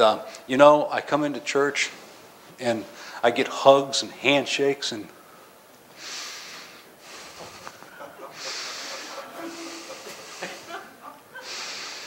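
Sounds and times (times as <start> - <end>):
man sniffing loudly: 6.0 - 10.8, 11.4 - 12.0.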